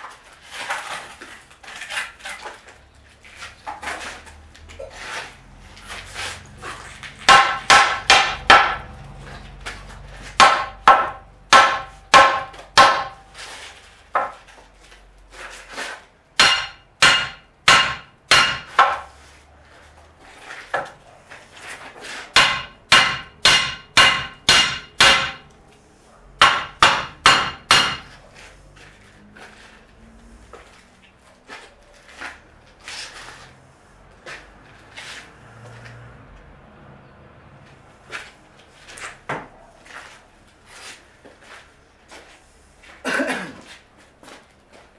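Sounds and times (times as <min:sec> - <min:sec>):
hammer ringing on metal: 0:10.4 - 0:13.2, 0:16.4 - 0:18.9, 0:22.4 - 0:25.4, 0:26.4 - 0:28.1.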